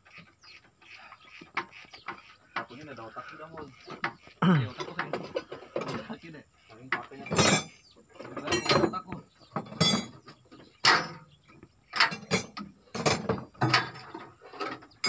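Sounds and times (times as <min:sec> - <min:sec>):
hand tools clinking on steel: 0:06.9 - 0:11.3, 0:11.9 - 0:14.8.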